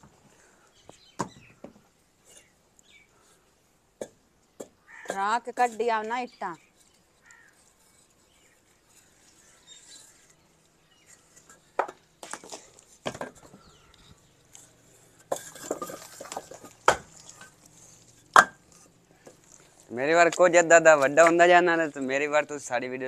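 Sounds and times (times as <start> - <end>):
bricks knocking and clinking: 11.4 - 13.6, 15.2 - 17.6, 18.3 - 19.4.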